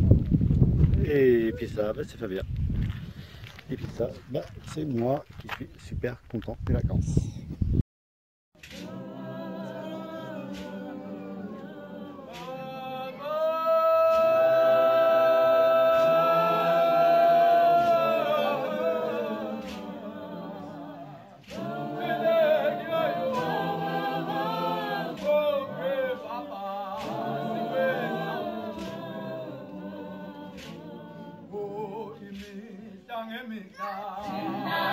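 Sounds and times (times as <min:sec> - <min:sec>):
women singing a cappella: 0:08.6 - 0:33.1, 0:33.7 - 0:34.9.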